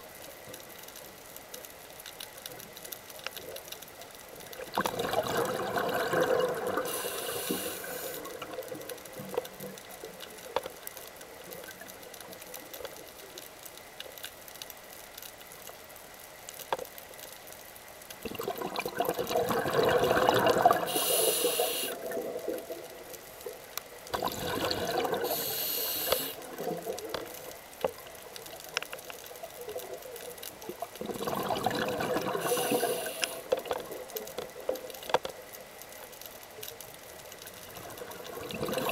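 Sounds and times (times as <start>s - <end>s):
exhaled bubbles gushing: 4.6s - 8.9s, 18.2s - 23.0s, 24.1s - 25.6s, 26.4s - 27.4s, 30.6s - 34.2s, 37.7s - 38.9s
diver breathing through regulator: 6.8s - 8.3s, 20.8s - 22.0s, 24.9s - 26.4s, 32.3s - 33.5s.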